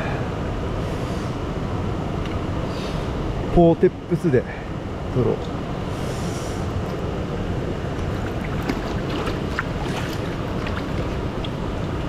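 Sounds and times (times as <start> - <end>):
stream water rushing: 5.6 - 12.0.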